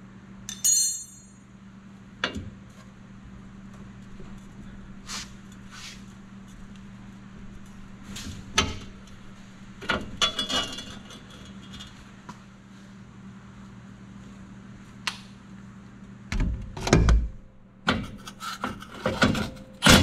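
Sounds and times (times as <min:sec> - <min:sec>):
steady low hum: 0:00.0 - 0:20.0
metal hardware clinking: 0:00.5 - 0:01.4
metallic ring: 0:00.5 - 0:01.6.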